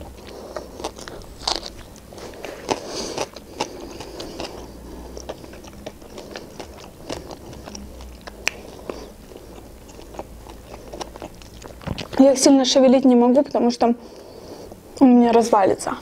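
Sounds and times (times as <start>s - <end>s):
person chewing food: 0.0s - 12.4s
mouth clicks: 2.6s - 12.2s.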